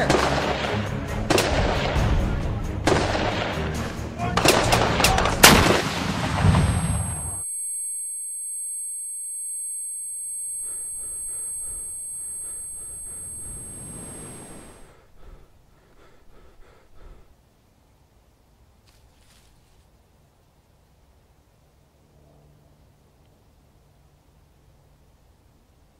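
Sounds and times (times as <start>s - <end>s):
high-pitched ear ringing: 6.5s - 14.9s.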